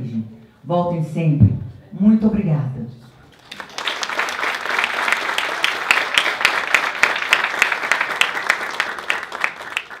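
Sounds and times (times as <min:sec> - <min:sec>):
people applauding: 0:03.3 - 0:10.0.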